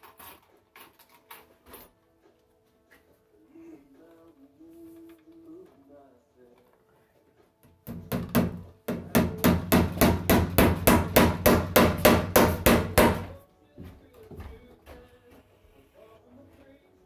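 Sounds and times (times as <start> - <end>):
hammer striking wooden stud: 7.8 - 14.6.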